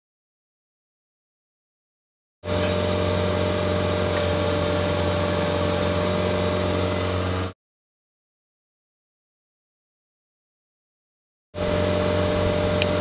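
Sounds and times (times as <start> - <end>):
diesel engine and hydraulics humming: 2.4 - 7.6, 11.6 - 13.0
even tones: 2.5 - 7.5.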